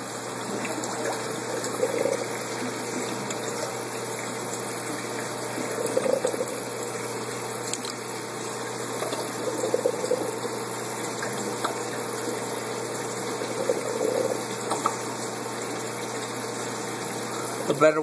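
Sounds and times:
water running in fish tank: 0:00.0 - 0:18.0.

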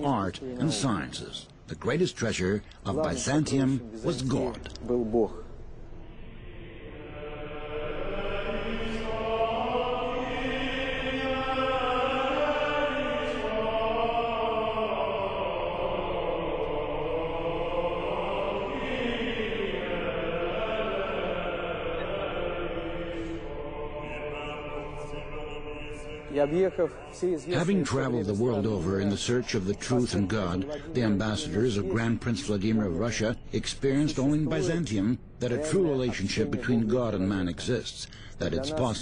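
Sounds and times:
choir chanting: 0:06.0 - 0:35.0.

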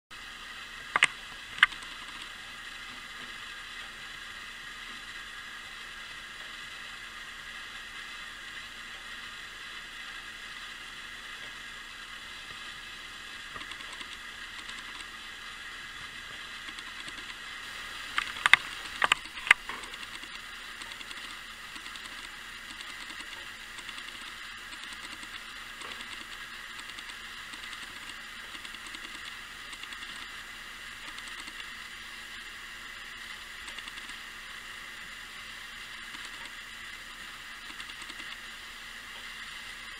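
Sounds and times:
sharp clockwork clicks: 0:00.9 - 0:02.4, 0:13.5 - 0:15.2, 0:16.6 - 0:17.5, 0:18.1 - 0:31.8, 0:33.6 - 0:34.2, 0:36.0 - 0:36.6, 0:37.6 - 0:38.5
clockwork gear whirr: 0:13.4 - 0:32.6, 0:33.3 - 0:34.8, 0:35.8 - 0:39.9.

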